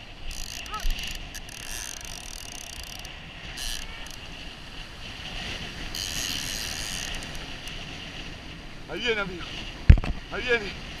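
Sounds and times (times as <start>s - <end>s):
fishing reel whirring: 0.0s - 4.5s, 5.4s - 7.8s
surf wash: 0.0s - 11.0s
wind on microphone: 0.0s - 11.0s.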